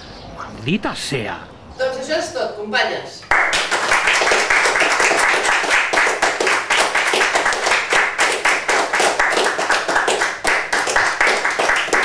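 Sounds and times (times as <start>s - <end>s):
small group applauding: 3.3s - 12.0s.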